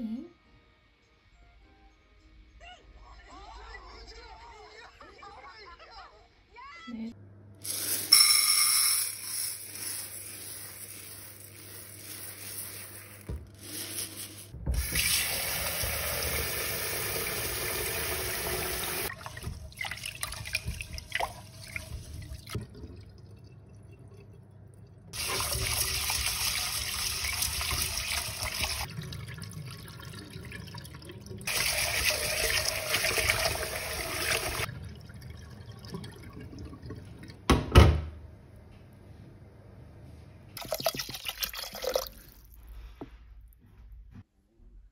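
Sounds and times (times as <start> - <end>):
running water: 9.7 - 37.4.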